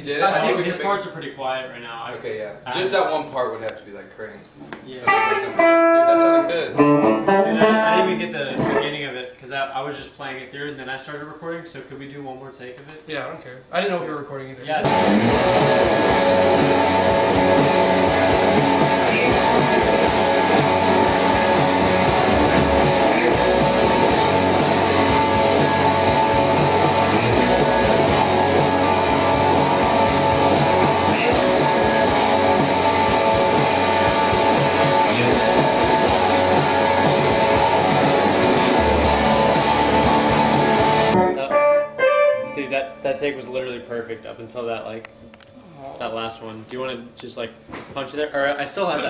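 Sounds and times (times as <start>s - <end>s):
electric guitar chords: 5.1s - 9.1s, 14.8s - 43.1s.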